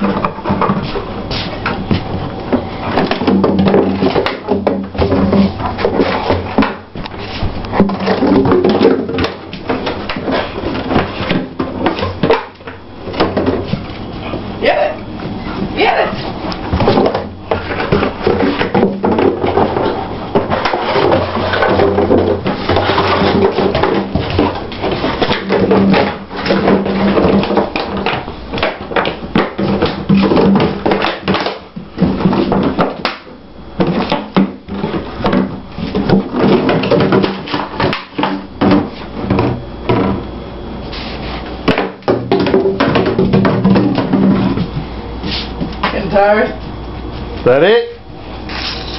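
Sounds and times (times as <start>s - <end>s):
plastic bottle knocking on floor: 41.7s - 44.7s.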